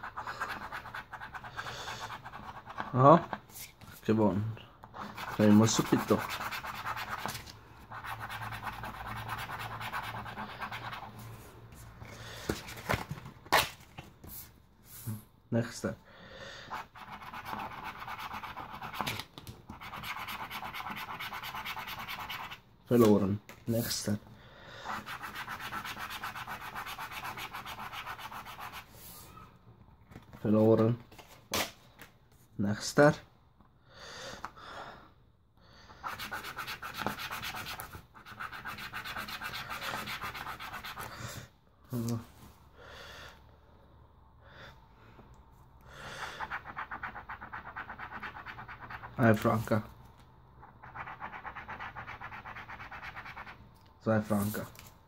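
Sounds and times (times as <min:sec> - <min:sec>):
scratch card being scratched: 0:00.0 - 0:03.4, 0:05.0 - 0:11.2, 0:16.7 - 0:22.6, 0:24.9 - 0:28.9, 0:36.0 - 0:41.1, 0:46.4 - 0:49.8, 0:50.6 - 0:53.6.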